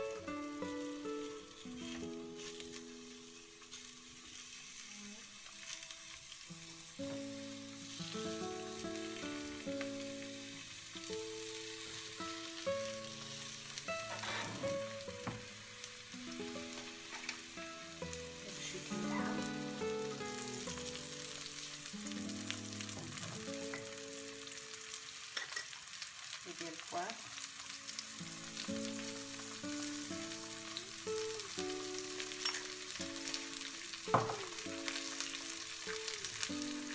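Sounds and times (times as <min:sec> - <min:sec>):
quiet background music: 0:00.0 - 0:25.3, 0:26.2 - 0:36.9
vegetables sizzling in frying pan: 0:00.0 - 0:36.9.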